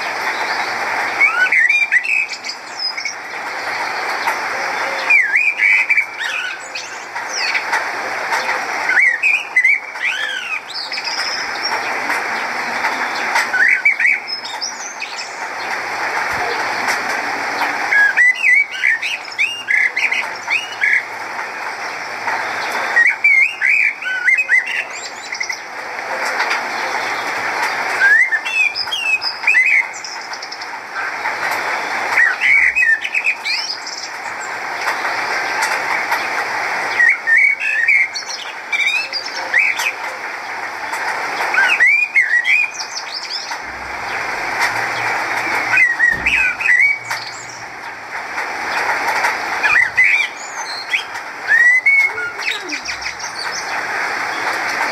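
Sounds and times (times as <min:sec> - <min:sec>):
blackbird singing: 0:00.0 - 0:07.6, 0:08.4 - 0:15.7, 0:17.5 - 0:21.1, 0:22.0 - 0:25.7, 0:27.9 - 0:30.7, 0:32.1 - 0:34.6, 0:36.9 - 0:40.0, 0:41.4 - 0:48.0, 0:49.6 - 0:54.6
steady background hiss: 0:00.0 - 0:54.9.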